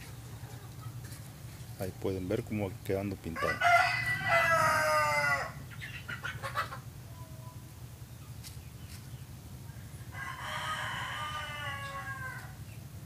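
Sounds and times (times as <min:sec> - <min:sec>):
steady low hum: 0:00.0 - 0:13.0
rooster crowing: 0:03.3 - 0:05.6, 0:10.0 - 0:12.6.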